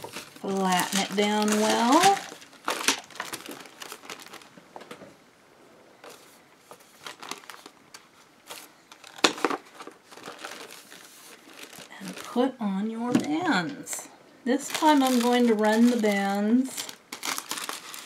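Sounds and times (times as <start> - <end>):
sharp paper crackles: 0.0 - 4.6, 6.0 - 12.5, 14.6 - 18.0
wax paper crinkling: 0.0 - 5.0, 6.0 - 12.9, 14.5 - 18.0.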